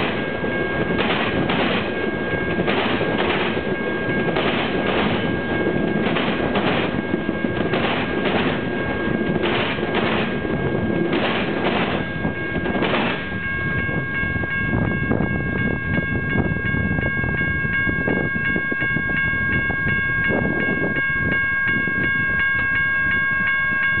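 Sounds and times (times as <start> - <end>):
train wheels knocking over crossing: 0.0 - 14.0
high repeating ringing: 0.0 - 24.0.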